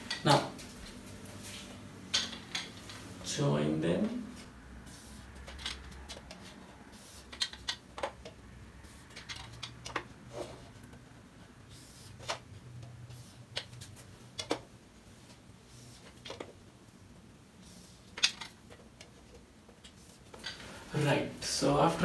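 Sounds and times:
marker scraping on whiteboard: 4.8s - 7.6s, 8.8s - 10.8s, 11.7s - 12.4s, 13.0s - 14.0s, 15.6s - 16.2s, 17.6s - 18.2s, 19.8s - 20.4s.

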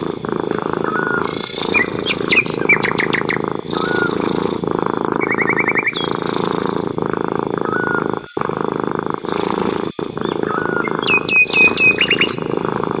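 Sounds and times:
cat purring: 0.0s - 13.0s
small birds chirping: 0.0s - 13.0s
falling whistles and trills: 10.4s - 12.5s.

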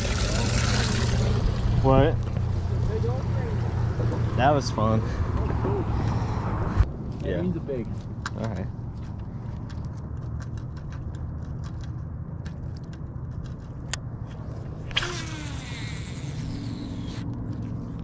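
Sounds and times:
fishing reel spool whirring: 0.0s - 1.4s, 14.9s - 17.6s
steady low rumble: 0.0s - 18.0s.

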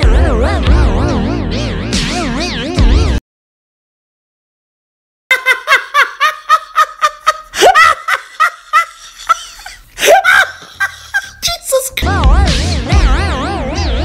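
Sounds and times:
high-pitched laughter: 5.3s - 11.7s.

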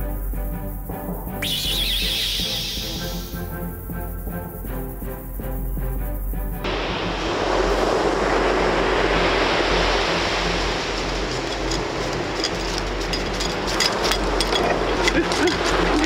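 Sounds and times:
ocean surf breaking on beach: 6.7s - 16.0s
light clicks and clinks: 12.4s - 16.0s.

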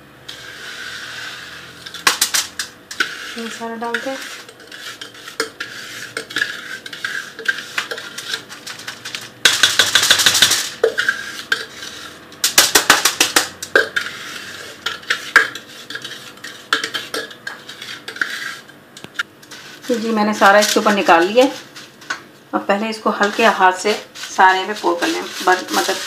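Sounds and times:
utensil scraping glass bowl: 0.3s - 12.4s, 13.5s - 18.8s, 19.4s - 22.2s, 23.1s - 26.0s.

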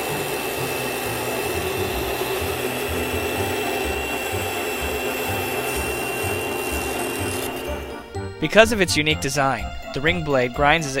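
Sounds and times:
saw blade grinding glass: 0.0s - 8.0s.

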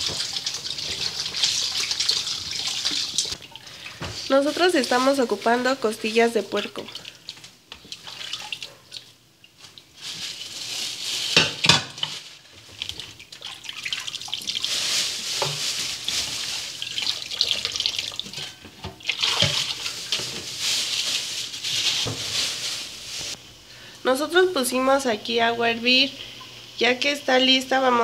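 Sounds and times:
tap water running into bowl: 0.0s - 4.1s.

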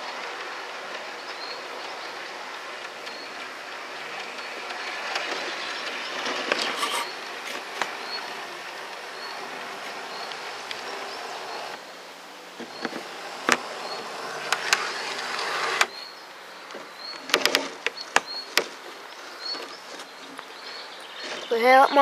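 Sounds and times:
model train wheels clicking: 0.0s - 16.0s
small electric motor whirring: 0.0s - 16.0s.

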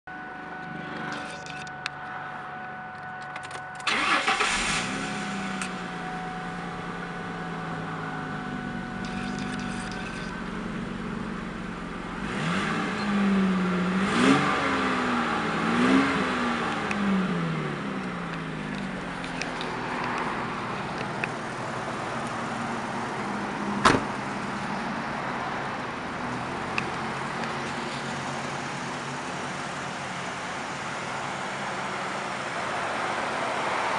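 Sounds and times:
car engine starting and idling: 0.1s - 33.9s
car engine revving: 3.9s - 33.9s
sharp knock: 23.8s - 24.1s.

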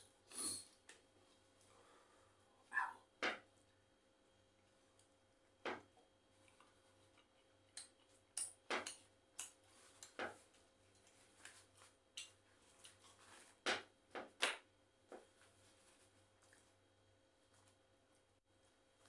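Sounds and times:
chewing smacks and clicks: 6.4s - 10.2s.

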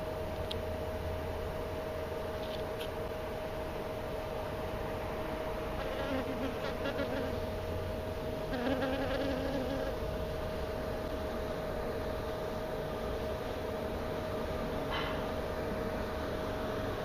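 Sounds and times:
background hum: 0.0s - 17.0s
bee buzzing: 5.8s - 7.5s, 8.4s - 10.2s.

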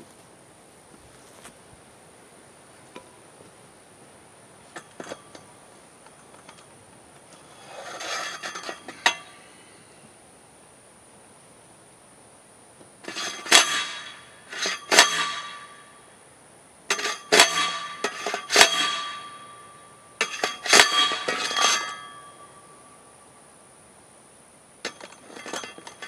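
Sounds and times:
post driver clanking on steel: 4.7s - 9.4s, 13.0s - 15.9s, 16.9s - 22.6s, 24.8s - 26.0s.

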